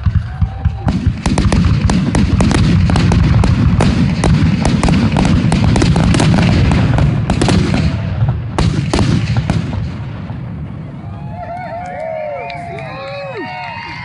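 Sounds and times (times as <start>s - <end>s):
fireworks sharp cracks: 0.0s - 11.1s
fireworks low booming rumble: 0.0s - 11.8s.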